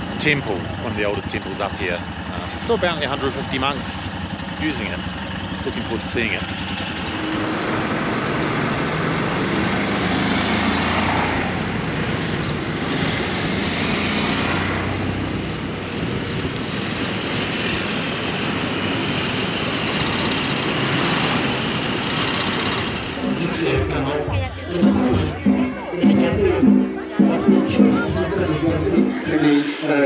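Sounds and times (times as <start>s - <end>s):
motorcycle engine running: 0.0s - 29.4s
wind rushing over microphone: 11.4s - 24.4s.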